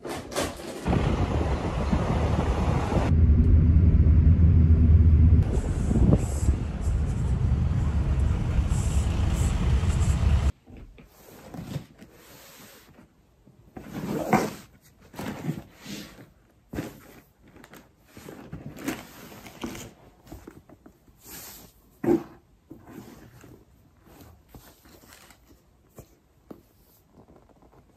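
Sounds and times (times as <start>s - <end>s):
road traffic rumbling: 0.9s - 10.5s.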